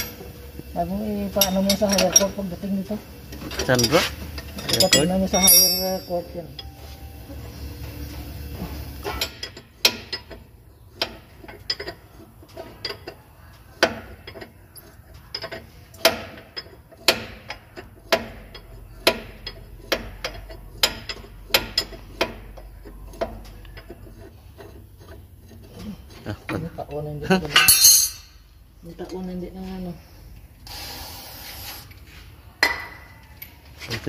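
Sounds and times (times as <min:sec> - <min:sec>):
ratchet wrench clicking: 0:01.1 - 0:02.6.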